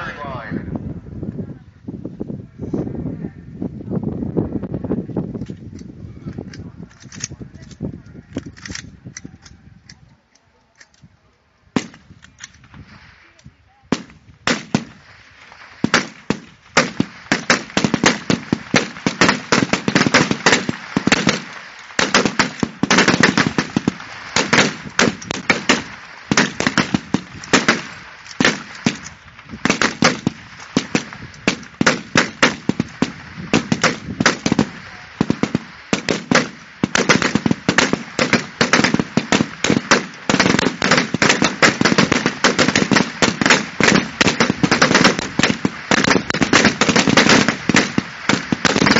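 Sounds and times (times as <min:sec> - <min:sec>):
rifle shots: 0:13.9 - 0:48.9.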